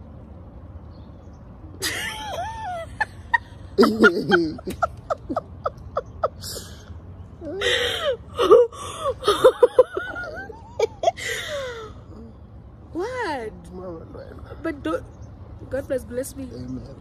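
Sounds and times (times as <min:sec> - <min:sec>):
woman laughing: 0:01.8 - 0:06.8, 0:07.5 - 0:11.9
woman gasping and squealing: 0:07.5 - 0:09.2.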